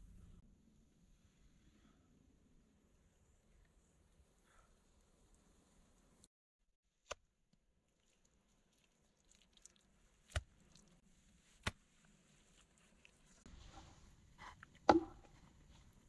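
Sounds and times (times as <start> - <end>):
wet mud squishing: 7.9 - 13.4
mud slaps: 9.3 - 10.9.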